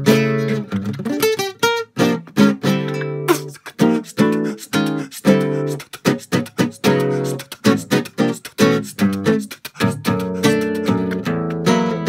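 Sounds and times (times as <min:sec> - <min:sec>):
acoustic guitar strumming: 0:00.0 - 0:12.0
voice percussion: 0:03.2 - 0:11.8.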